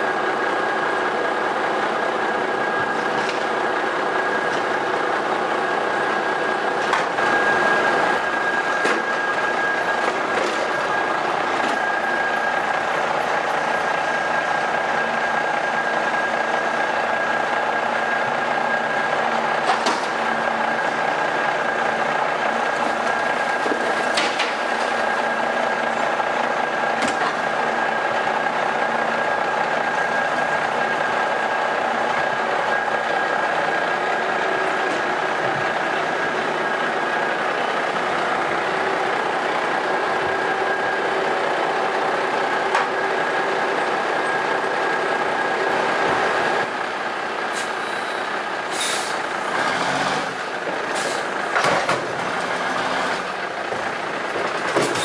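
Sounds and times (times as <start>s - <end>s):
diesel engine with high whine: 0.0s - 55.0s
short air hisses: 47.5s - 49.2s.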